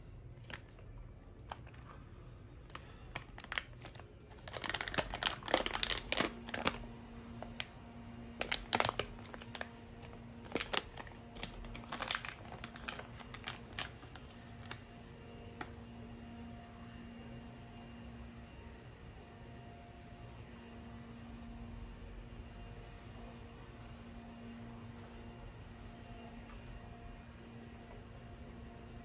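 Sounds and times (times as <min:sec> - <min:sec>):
plastic snack bag crinkling: 0:00.4 - 0:02.0, 0:02.6 - 0:07.7, 0:08.3 - 0:14.8.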